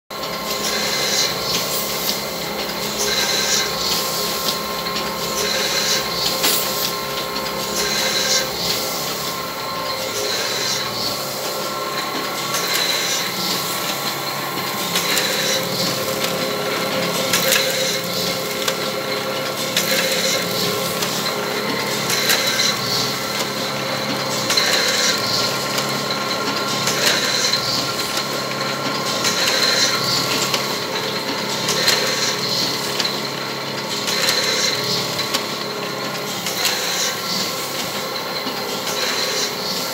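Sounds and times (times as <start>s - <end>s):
printing press clattering: 0.2s - 39.9s.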